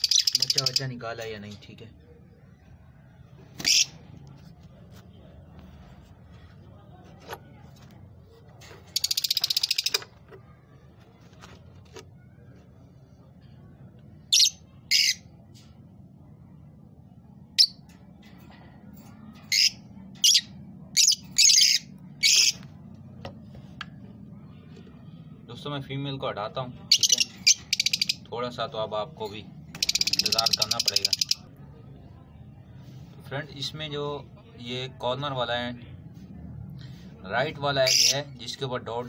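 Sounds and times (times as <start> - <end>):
high-pitched bird chirps: 0.0 - 0.8, 9.0 - 10.1, 14.3 - 15.3, 17.6 - 17.8, 19.5 - 22.6, 26.9 - 28.3, 29.7 - 31.5
birds buzzing chatter: 0.0 - 1.7, 3.4 - 4.2, 8.8 - 10.8, 13.4 - 15.8, 17.5 - 23.1, 24.0 - 31.5, 37.6 - 38.6.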